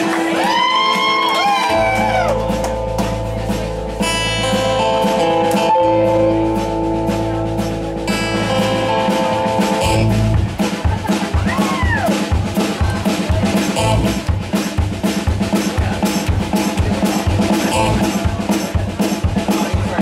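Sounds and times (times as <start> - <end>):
drum kit beat: 0.0 - 20.0
low bass tone: 2.0 - 10.6, 13.8 - 14.4, 17.6 - 18.3
guitars ringing: 2.3 - 10.6.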